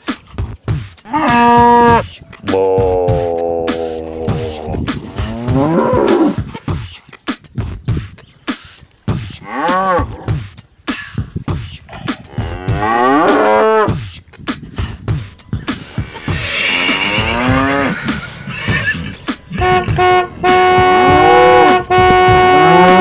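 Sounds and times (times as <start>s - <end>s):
sharp percussive beats: 0.1s - 9.4s, 11.4s - 14.2s, 15.0s - 23.0s
cow mooing: 1.1s - 2.0s, 2.8s - 6.4s, 12.3s - 13.9s, 16.4s - 23.0s.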